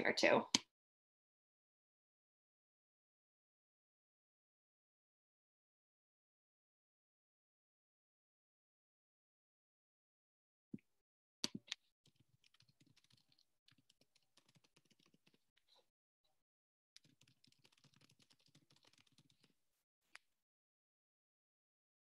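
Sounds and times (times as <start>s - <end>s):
typing on keyboard: 11.4s - 15.4s, 17.0s - 19.5s.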